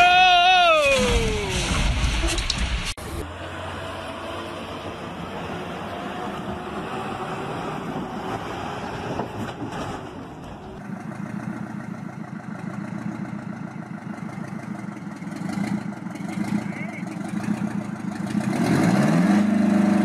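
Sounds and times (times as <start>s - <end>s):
wooden bridge crashing: 0.6s - 3.0s
heavy truck engine running: 1.4s - 18.7s
diesel truck engine idling: 10.1s - 18.3s.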